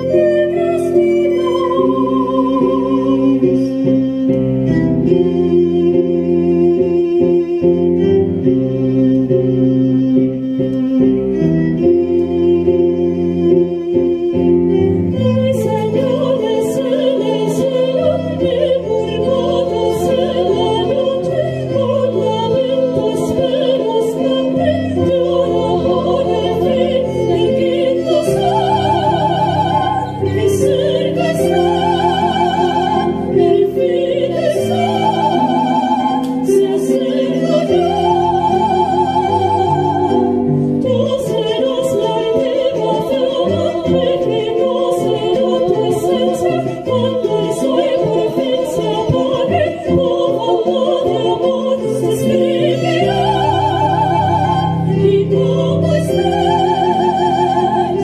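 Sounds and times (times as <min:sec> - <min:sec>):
women singing operatic style: 0:00.0 - 0:04.1, 0:12.2 - 0:58.0
piano accompaniment: 0:00.0 - 0:58.0.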